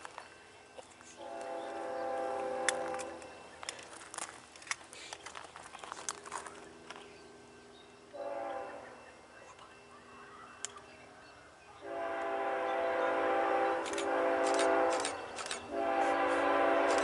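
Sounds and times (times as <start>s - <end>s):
distant locomotive horn: 1.1s - 3.4s, 8.1s - 9.2s, 11.8s - 17.0s
sharp clicks: 13.8s - 15.7s.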